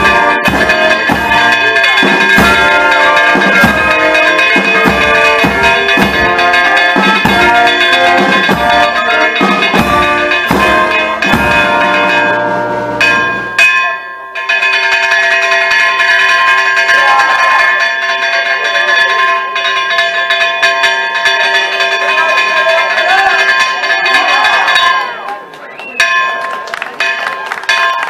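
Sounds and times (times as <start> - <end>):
band music with drums: 0.0 - 13.7
church bells pealing: 0.0 - 28.0.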